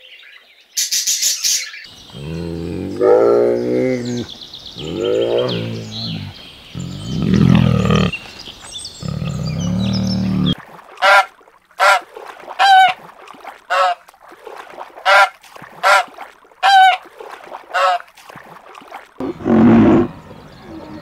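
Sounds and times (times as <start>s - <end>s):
waterfowl honking: 11.0s - 13.0s, 13.7s - 14.0s, 15.0s - 17.1s, 17.7s - 18.1s.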